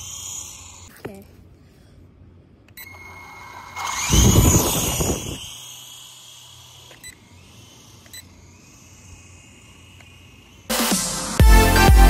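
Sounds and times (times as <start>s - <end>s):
toy helicopter rotor downwash: 0.0s - 1.0s, 2.8s - 11.4s
high whine of electric motors: 0.0s - 1.5s, 2.1s - 11.4s.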